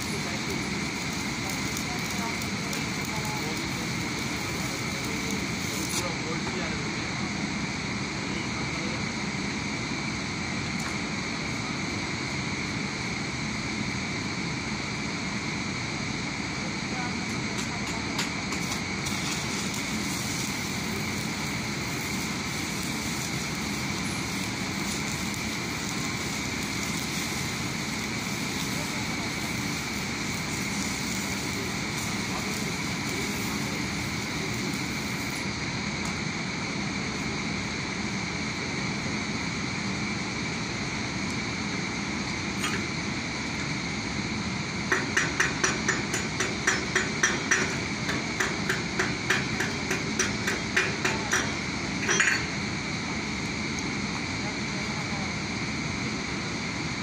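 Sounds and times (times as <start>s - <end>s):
machine low rumble: 0.0s - 17.6s
arc welding crackling hiss: 0.0s - 57.0s
machine high whine: 0.0s - 57.0s
steady background noise: 0.0s - 57.0s.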